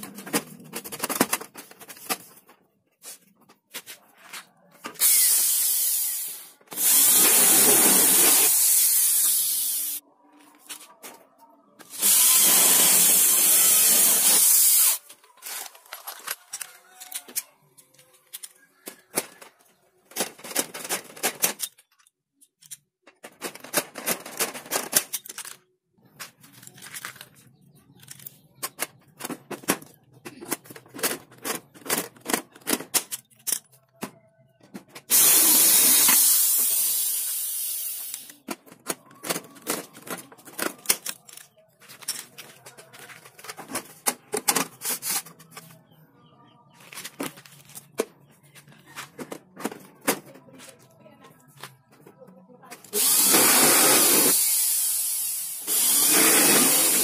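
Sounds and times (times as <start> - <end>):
electric drill boring into metal: 53.0 - 57.0.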